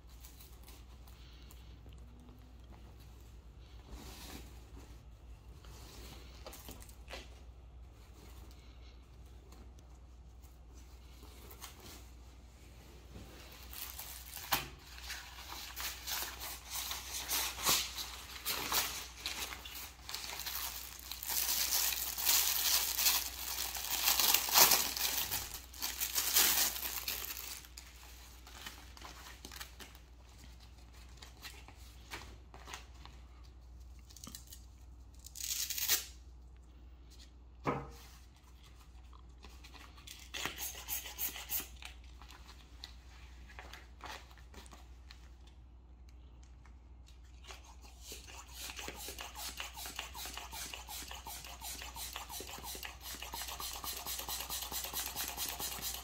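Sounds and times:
plastic bag crinkling and tearing: 13.6 - 30.2, 34.0 - 36.3.

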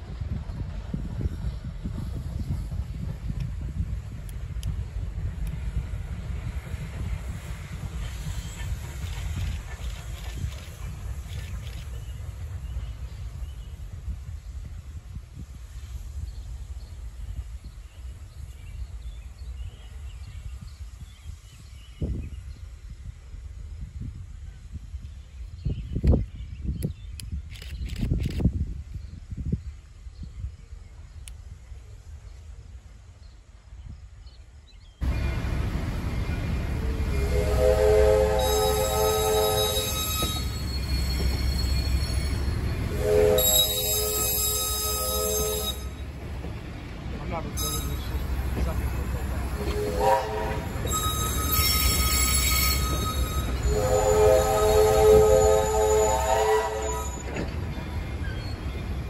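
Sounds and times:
wind buffeting microphone: 0.0 - 45.0
train rumbling: 0.0 - 59.0
train air horn blasts: 37.0 - 42.0, 42.9 - 46.0, 49.5 - 57.4.

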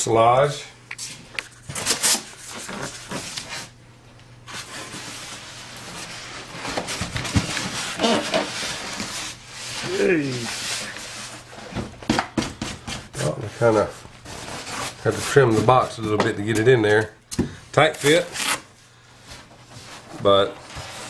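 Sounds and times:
styrofoam rubbing and scraping: 4.5 - 11.7, 12.7 - 16.0.

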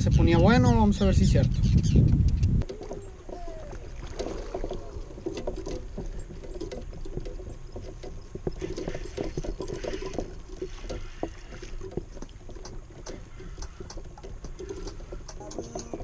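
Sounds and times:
water lapping against kayak hull: 2.6 - 16.0
small knocks and clicks: 4.6 - 16.0.

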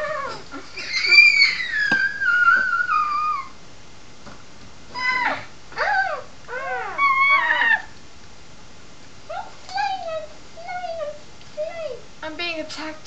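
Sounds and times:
child squealing: 0.0 - 3.6.

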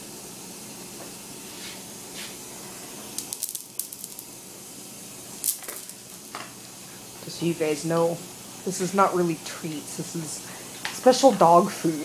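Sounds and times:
steady hiss: 0.0 - 12.0
dry dog food clicking on tile: 3.2 - 4.2.

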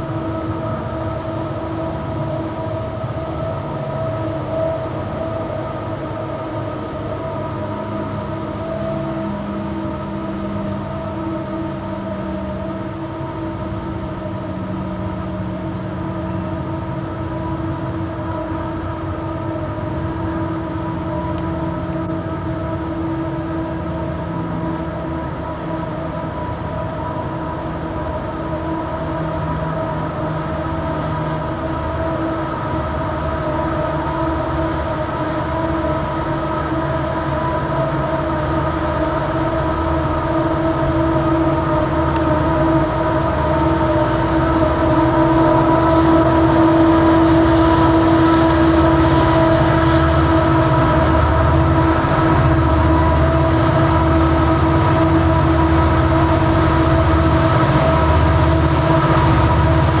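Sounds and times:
diesel locomotives working hard: 0.0 - 60.0.

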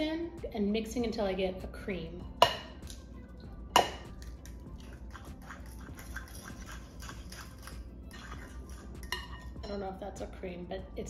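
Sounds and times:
eggs cracking on metal bowl: 3.7 - 9.6
fork stirring in bowl: 4.2 - 9.7.

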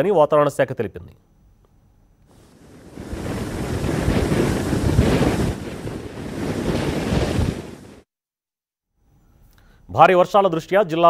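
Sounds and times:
sea surf breaking on shore: 2.3 - 8.0
wind buffeting microphone: 2.3 - 8.0.

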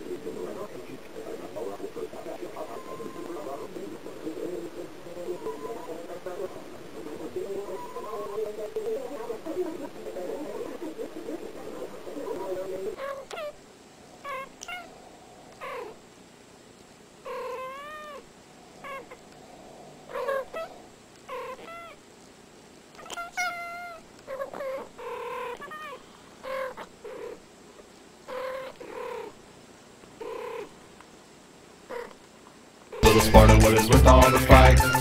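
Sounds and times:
cats meowing and trilling: 5.3 - 6.0, 14.2 - 15.0, 17.3 - 18.2.

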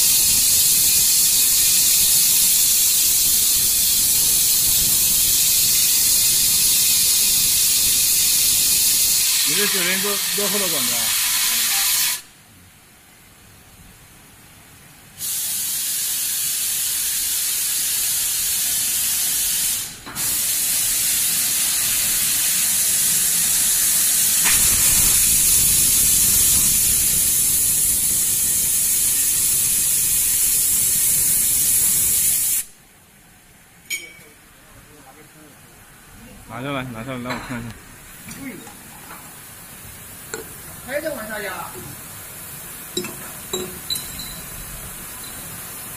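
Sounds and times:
torch flame hissing: 0.0 - 12.3, 15.2 - 32.8.

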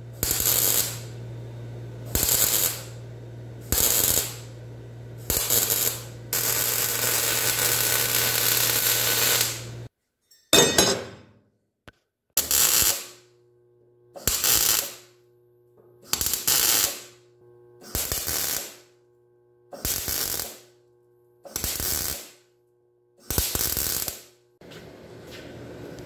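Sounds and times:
welding crackling bursts: 0.1 - 1.4, 2.0 - 9.9, 12.4 - 13.3, 14.2 - 15.2, 16.0 - 17.2, 17.8 - 19.0, 19.7 - 20.8, 21.5 - 22.5, 23.2 - 24.4.

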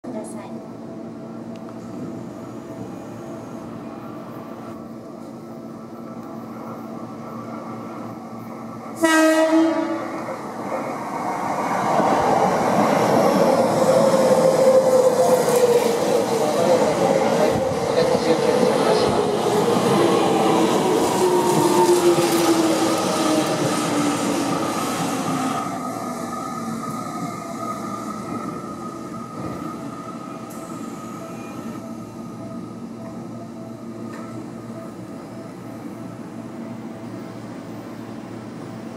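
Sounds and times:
train rail noise: 0.1 - 38.9
train horn blast: 9.0 - 10.1.

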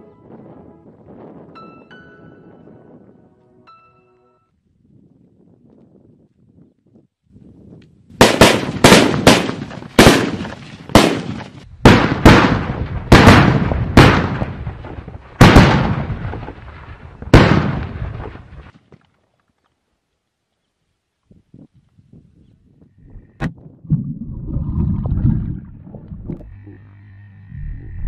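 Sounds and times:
firecrackers banging: 8.2 - 18.7.

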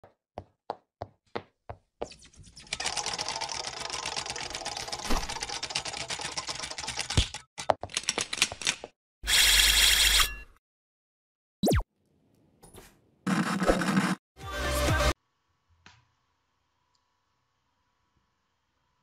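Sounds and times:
fast mechanical clattering: 2.7 - 7.5.

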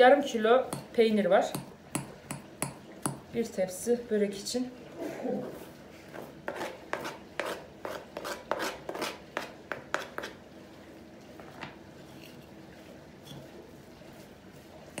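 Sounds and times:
fork tapping on plastic board: 1.5 - 3.2.

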